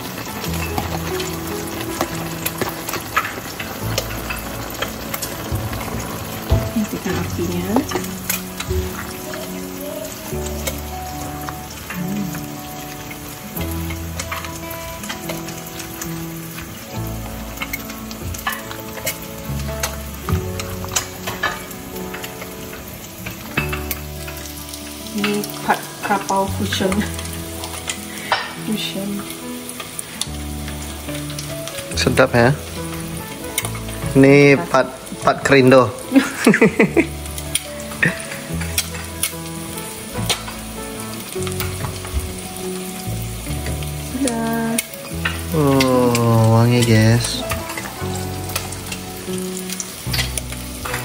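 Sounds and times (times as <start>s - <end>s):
background music with held notes: 0.0s - 51.0s
food sizzling: 0.0s - 51.0s
metal clicking on pan: 0.4s - 9.6s, 13.6s - 16.7s, 17.5s - 32.0s, 35.4s - 51.0s
utensil clicking against pan: 37.2s - 51.0s.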